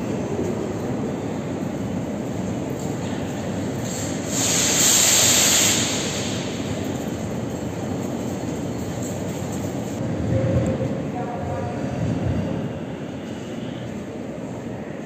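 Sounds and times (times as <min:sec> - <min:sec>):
train wheels rumbling: 0:00.0 - 0:15.0
hiss: 0:03.8 - 0:07.3.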